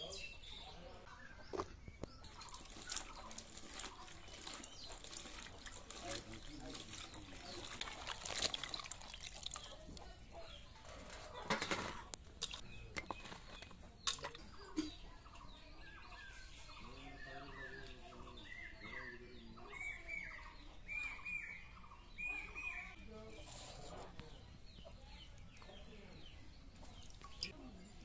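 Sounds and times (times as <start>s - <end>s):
water splashing in a pot: 2.2s - 10.2s.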